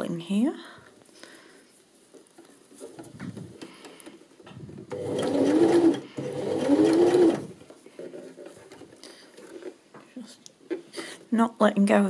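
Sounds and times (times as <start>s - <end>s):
sewing machine stitching: 4.9s - 7.6s.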